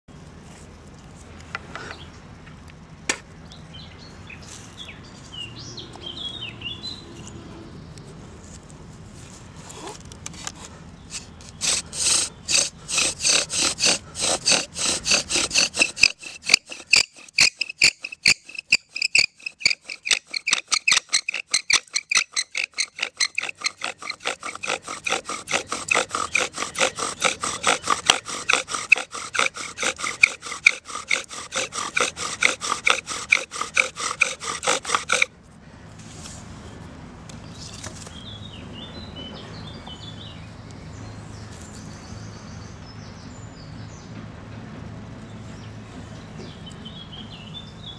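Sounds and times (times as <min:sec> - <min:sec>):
bow sawing back and forth: 0:09.6 - 0:35.3
wooden spindle squeaking: 0:11.1 - 0:35.3.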